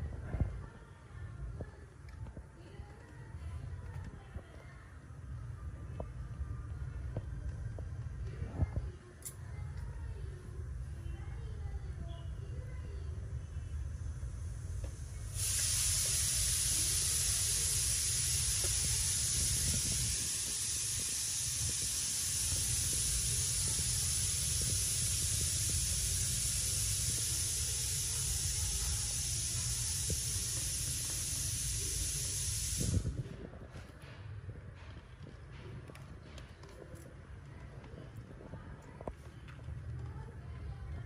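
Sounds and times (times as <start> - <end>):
steady even hiss: 12.6 - 35.0.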